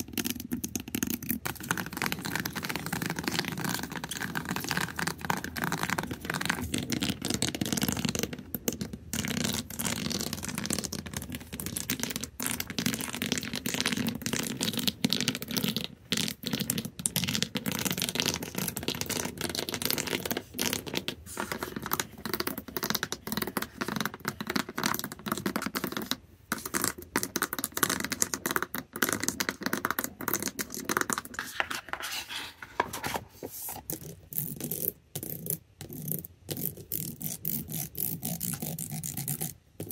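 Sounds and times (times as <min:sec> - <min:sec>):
fingernails scratching a surface: 0:31.3 - 0:33.2.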